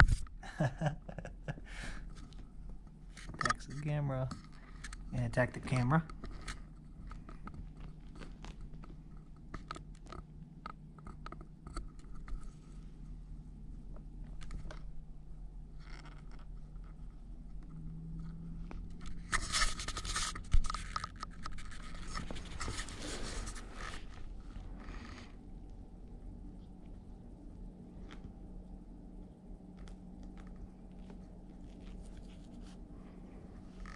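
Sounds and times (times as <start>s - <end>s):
faint steady low hum: 0.0s - 33.9s
kitten clawing on carpet: 6.1s - 10.3s, 15.6s - 33.9s.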